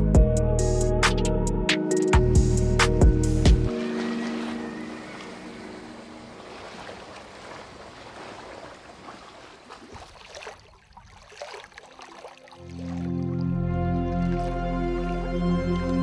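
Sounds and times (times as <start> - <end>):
small water splashes: 3.7 - 14.6
water churning: 3.7 - 15.3.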